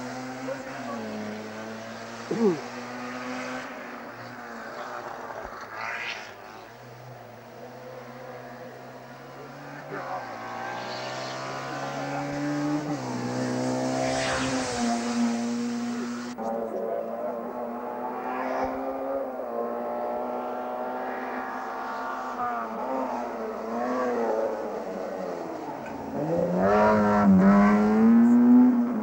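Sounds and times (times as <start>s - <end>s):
race car engine running hard: 0.0s - 29.0s.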